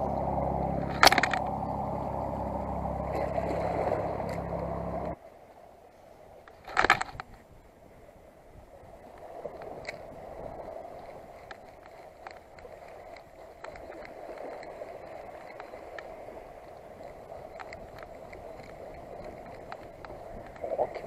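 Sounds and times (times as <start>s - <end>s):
spinning reel whirring: 0.0s - 5.2s, 10.4s - 21.0s.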